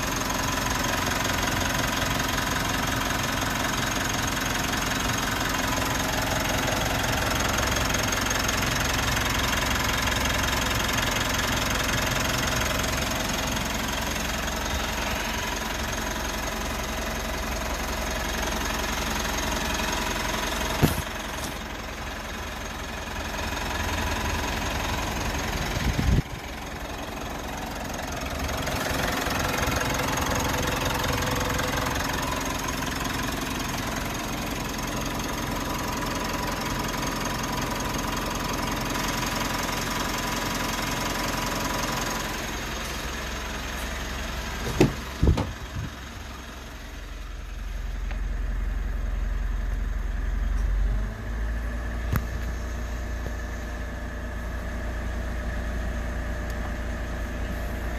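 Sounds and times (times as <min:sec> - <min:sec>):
diesel engine idling: 0:00.0 - 0:57.9.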